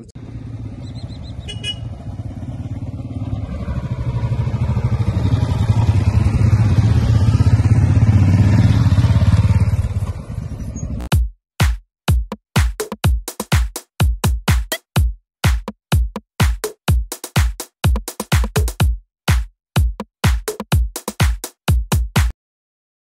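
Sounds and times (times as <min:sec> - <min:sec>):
motorcycle engines riding past: 0:00.1 - 0:11.0.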